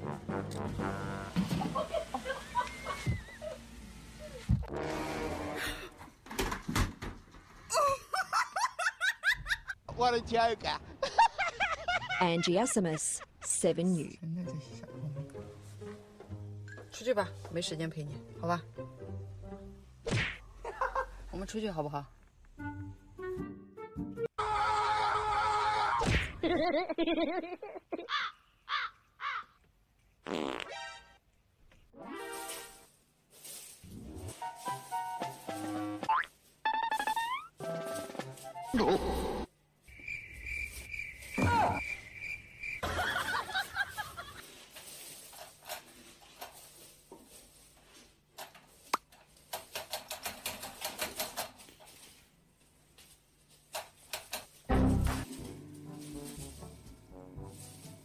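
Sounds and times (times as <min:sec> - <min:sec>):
wobbling fart-like buzz: 0:04.5 - 0:06.0
rice grains skittering on wooden floor: 0:33.3 - 0:33.9, 0:43.8 - 0:48.1
cartoon comedy sound effects: 0:36.0 - 0:37.6.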